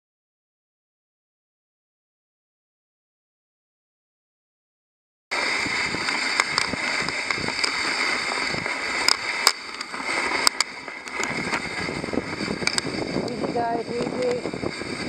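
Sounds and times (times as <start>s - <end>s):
sled runners hissing on snow: 5.3s - 15.0s
sled clicks and knocks: 5.4s - 15.0s.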